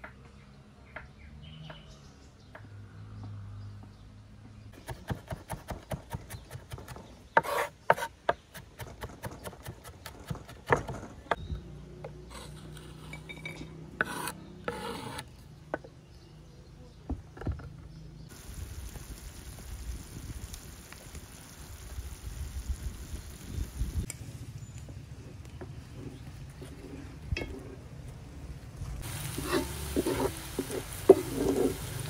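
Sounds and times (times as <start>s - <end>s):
knife chopping on wooden board: 4.8s - 11.1s
knife blade scraping wood: 7.4s - 8.2s, 12.3s - 15.4s.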